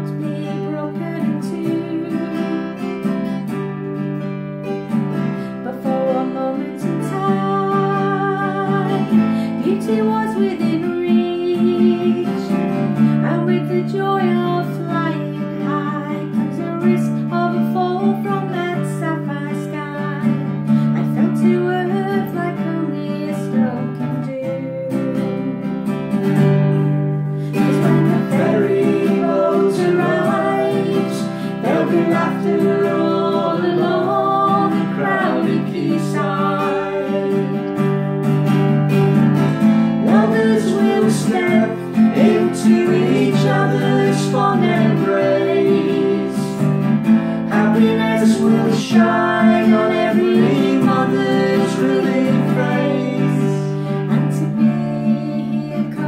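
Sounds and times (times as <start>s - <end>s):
woman singing: 0.0s - 3.4s, 5.5s - 25.8s, 27.5s - 37.9s, 40.0s - 46.7s, 47.5s - 56.0s
acoustic guitar strumming: 0.0s - 56.0s
man singing: 27.6s - 37.8s, 40.0s - 46.6s, 47.5s - 56.0s.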